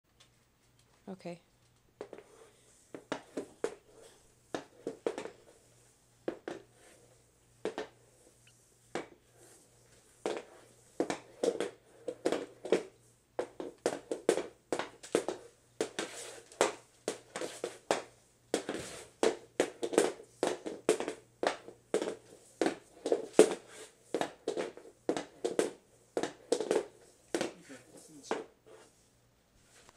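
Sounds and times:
hockey stick and puck clacking: 0:10.2 - 0:27.6.

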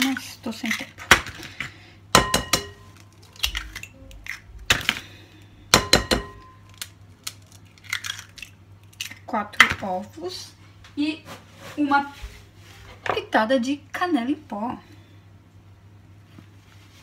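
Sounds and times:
shell clicks and egg dropping: 0:06.6 - 0:09.8.

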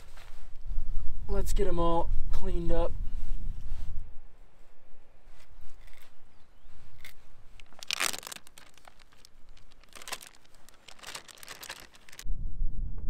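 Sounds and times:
plastic bag crinkling: 0:06.9 - 0:12.2.

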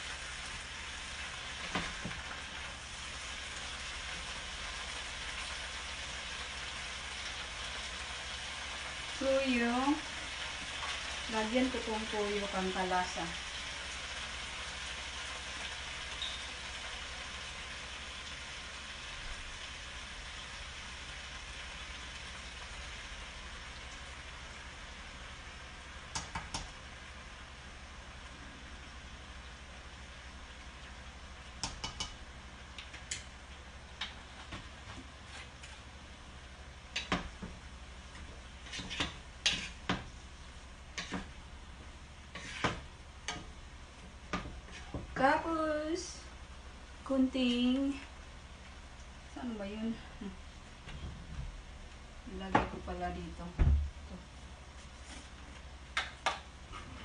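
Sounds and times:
vegetables sizzling in a pan: 0:00.0 - 0:57.0
utensil scraping frying pan: 0:34.0 - 0:35.9, 0:38.1 - 0:40.2, 0:40.9 - 0:41.4, 0:42.2 - 0:43.5, 0:44.3 - 0:45.2.

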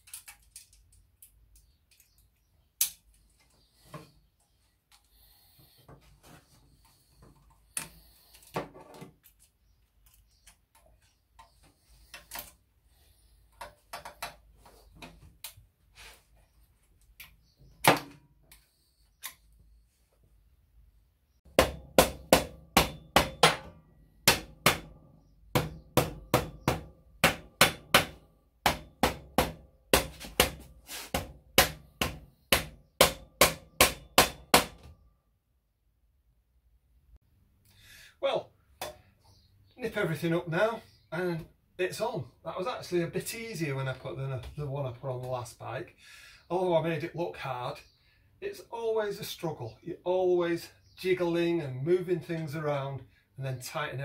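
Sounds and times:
rubber mallet striking metal pipes: 0:21.5 - 0:34.8.

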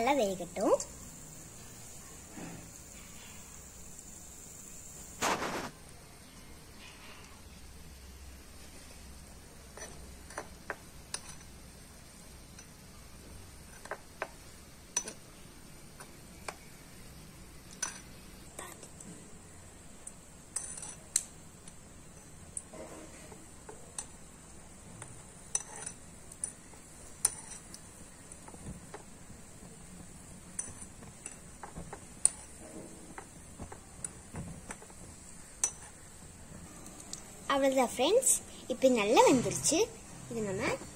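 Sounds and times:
faint steady hiss of frying oil: 0:00.0 - 0:40.9
metal spoon tapping and scraping pot: 0:09.7 - 0:11.8, 0:12.4 - 0:12.9, 0:13.5 - 0:16.8, 0:20.0 - 0:29.6, 0:30.2 - 0:36.2.

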